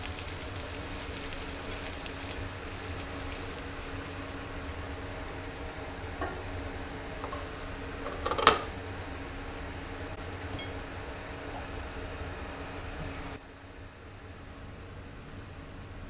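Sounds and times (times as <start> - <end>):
food sizzling in a frying pan: 0.0 - 5.5
steady low hum: 0.0 - 16.0.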